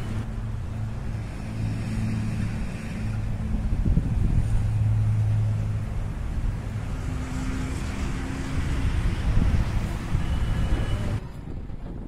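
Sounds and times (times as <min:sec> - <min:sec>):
road rumble: 0:00.0 - 0:12.0.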